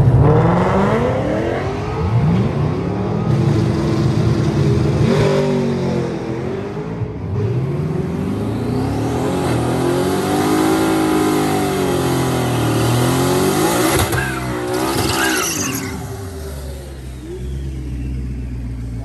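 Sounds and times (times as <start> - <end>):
car engine revving high: 0.0 - 18.7
car engine idling: 14.0 - 19.0.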